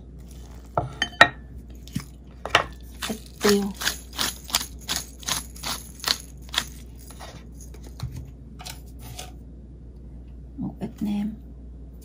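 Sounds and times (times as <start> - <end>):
pepper mill grinding: 1.8 - 7.9.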